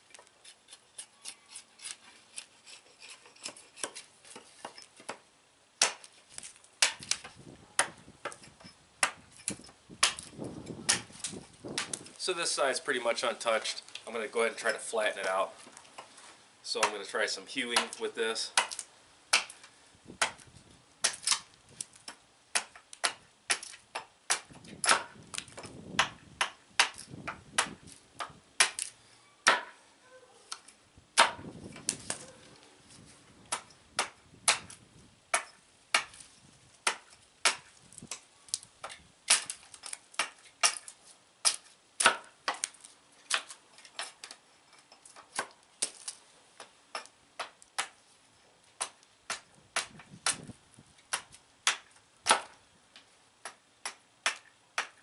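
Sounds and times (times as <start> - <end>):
hatchet chopping wood: 3.4 - 5.2, 5.8 - 12.1, 16.8 - 29.8, 30.5 - 32.4, 33.5 - 44.4, 45.0 - 48.0, 48.8 - 55.0.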